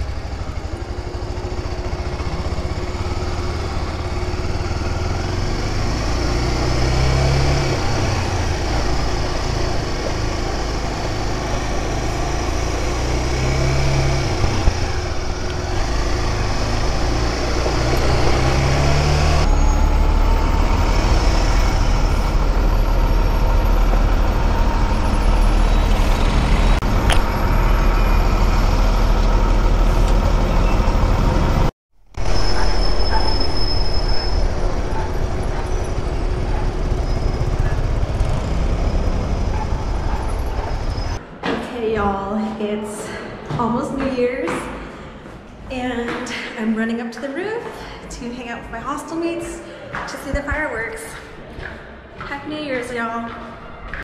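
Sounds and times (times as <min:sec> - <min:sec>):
bus engine close by: 0:00.0 - 0:41.3
motorcycle engine rumbling: 0:00.0 - 0:41.4
traffic noise: 0:00.0 - 0:54.0.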